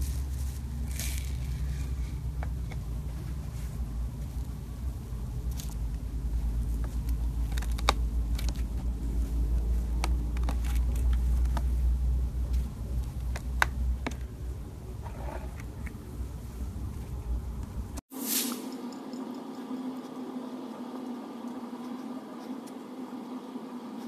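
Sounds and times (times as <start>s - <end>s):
low rumble of handling: 0.0s - 18.0s.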